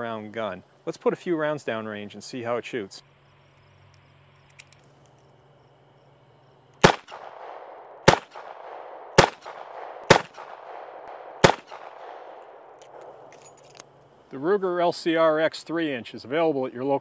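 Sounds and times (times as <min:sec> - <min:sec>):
revolver gunshots: 0:06.8 - 0:13.1.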